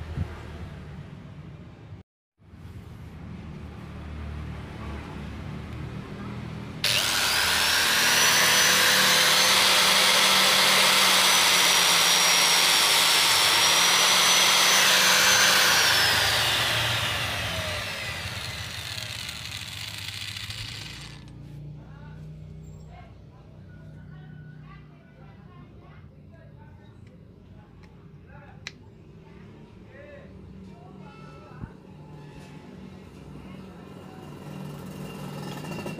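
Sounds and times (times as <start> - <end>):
angle grinder spinning down: 6.8 - 21.3
angle grinder whining: 6.8 - 21.3.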